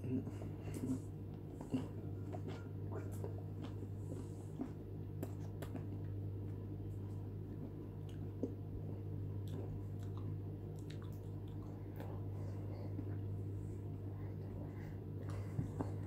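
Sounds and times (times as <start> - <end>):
person chewing: 0.0 - 6.2, 9.4 - 12.4
steady low hum: 0.0 - 16.0.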